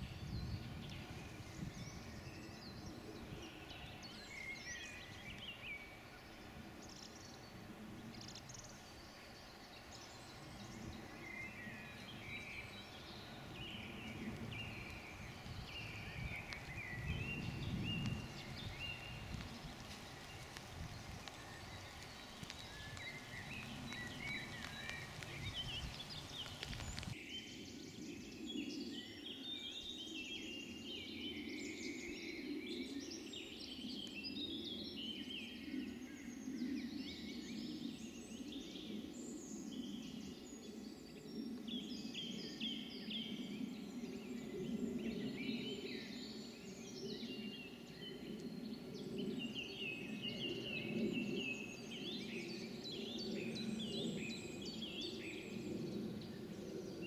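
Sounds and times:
small birds singing: 0:00.0 - 0:57.0
rough background noise: 0:18.1 - 0:27.2.

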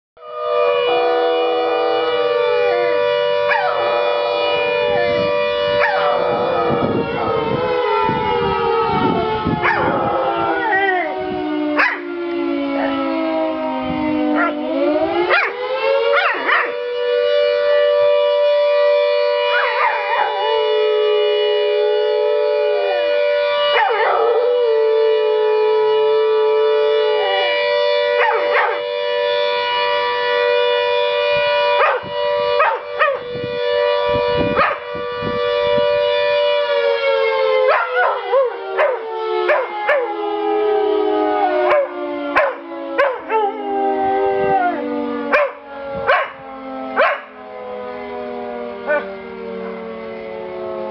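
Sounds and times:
siren: 0:00.2 - 0:50.9
dog howling and yipping: 0:03.5 - 0:03.9, 0:05.8 - 0:07.5, 0:09.6 - 0:11.2, 0:11.8 - 0:12.1, 0:14.4 - 0:16.8, 0:19.5 - 0:20.6, 0:23.7 - 0:24.6, 0:28.2 - 0:28.8, 0:37.7 - 0:40.2, 0:41.4 - 0:46.3.

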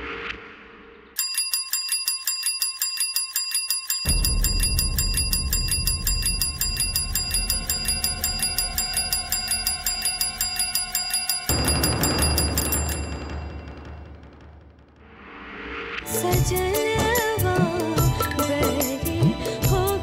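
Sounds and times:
high ringing tones: 0:01.2 - 0:14.2
bell-like ticking rhythm: 0:01.2 - 0:14.6, 0:16.2 - 0:20.0
deep bass pulse: 0:04.1 - 0:10.0.

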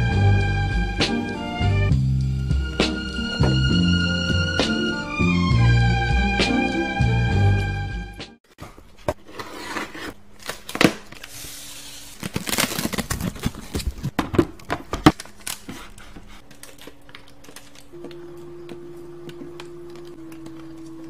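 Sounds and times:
cardboard rustling and tearing: 0:08.9 - 0:17.9.

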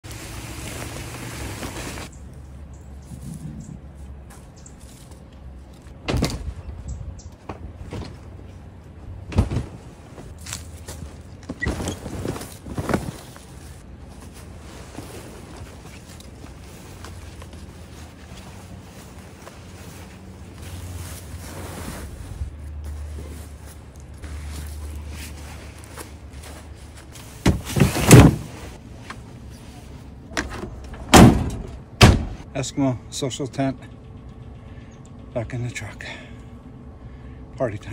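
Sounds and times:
tent fabric rustling: 0:00.0 - 0:02.2, 0:09.4 - 0:30.1.

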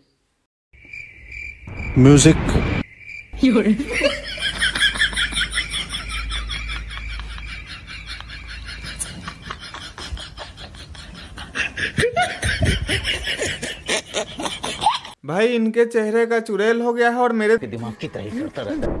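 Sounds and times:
person laughing: 0:03.8 - 0:15.2.

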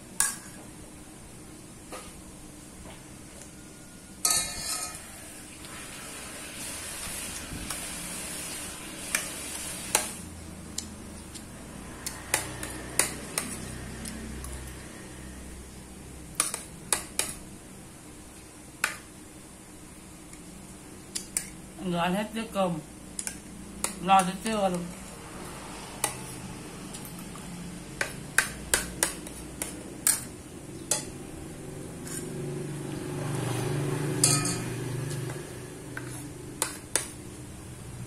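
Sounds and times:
spoon scraping a ceramic plate: 0:32.0 - 0:32.4, 0:36.0 - 0:37.0.

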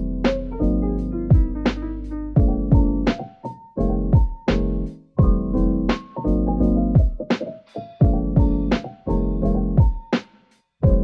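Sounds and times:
sustained keyboard chords: 0:00.0 - 0:10.2
drum beat: 0:01.3 - 0:01.8, 0:02.4 - 0:03.2, 0:04.1 - 0:06.2, 0:06.9 - 0:09.0, 0:09.8 - 0:11.0.

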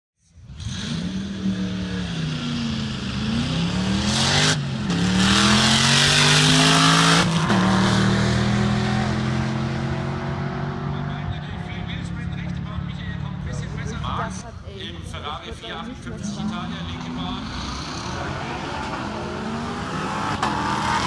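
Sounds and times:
car engine accelerating hard: 0:00.4 - 0:14.4, 0:15.6 - 0:21.0.

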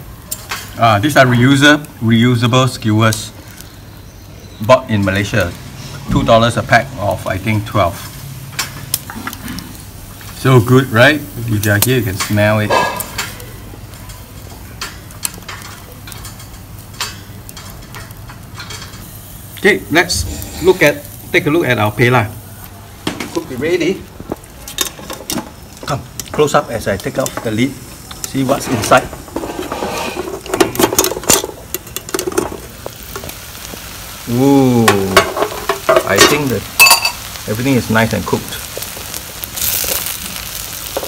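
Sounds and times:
prawns sizzling on a grill: 0:00.0 - 0:41.0
metal lid clinking: 0:35.2 - 0:37.2.

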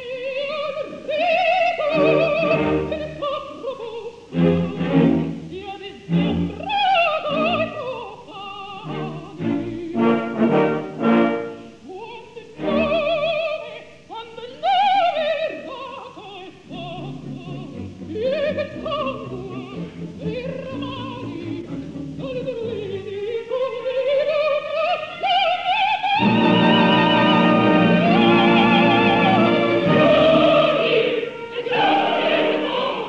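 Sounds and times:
soprano singing opera: 0:00.0 - 0:33.0
orchestra playing: 0:04.3 - 0:05.5, 0:08.8 - 0:11.8, 0:17.0 - 0:22.8, 0:26.2 - 0:33.0.

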